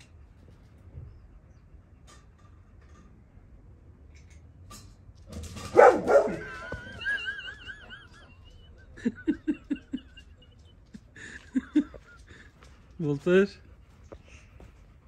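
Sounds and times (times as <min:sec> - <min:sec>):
dog barking: 0:05.6 - 0:06.6.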